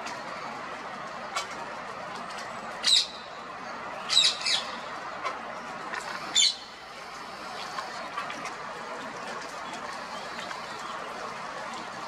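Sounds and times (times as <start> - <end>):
parakeet shrill calls: 2.8 - 3.2, 4.1 - 4.8, 6.3 - 6.7.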